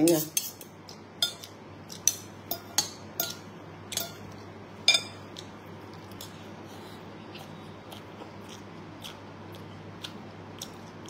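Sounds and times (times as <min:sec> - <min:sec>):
cutlery clinking on ceramic bowl: 0:00.0 - 0:04.3, 0:04.9 - 0:05.2.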